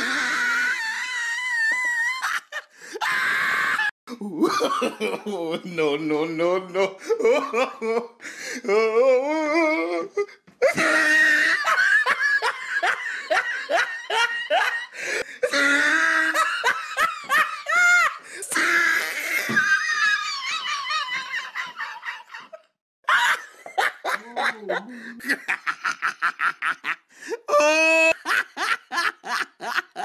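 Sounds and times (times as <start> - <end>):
people laughing heartily: 10.6 - 18.6, 19.2 - 27.1, 27.8 - 30.0
drawn-out wavering voice: 24.2 - 25.4.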